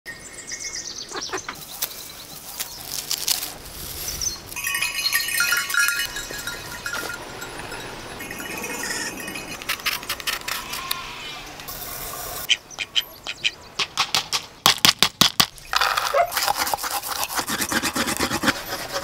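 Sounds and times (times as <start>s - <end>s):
farm animals calling: 1.0s - 3.0s
herbs rustling and snapping: 1.5s - 4.6s.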